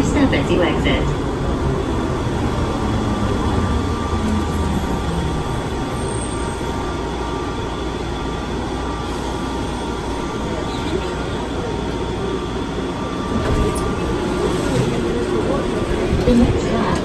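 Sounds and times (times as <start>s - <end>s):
train rumble with faint hum: 0.0s - 17.0s.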